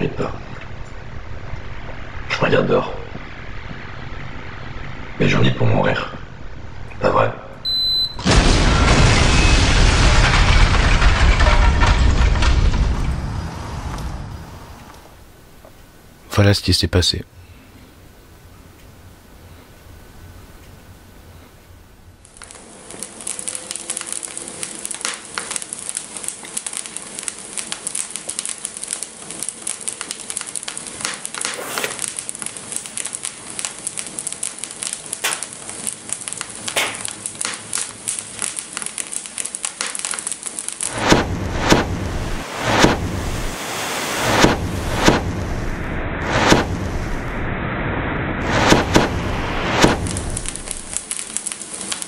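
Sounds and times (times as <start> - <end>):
dense crackling with sharp pops: 8.2 - 16.4, 17.7 - 52.0
deep rumble: 8.3 - 15.6, 41.0 - 51.0.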